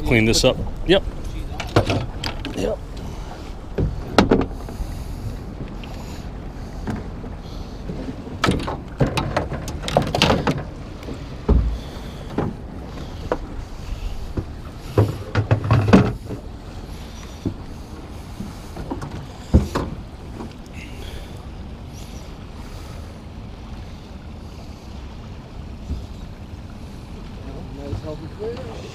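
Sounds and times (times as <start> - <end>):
knocks and clunks on boat deck: 0.0 - 21.5, 25.2 - 28.9
low wind rush: 0.0 - 28.9
heavy thump: 3.7 - 4.7, 11.4 - 12.6, 13.3 - 16.5.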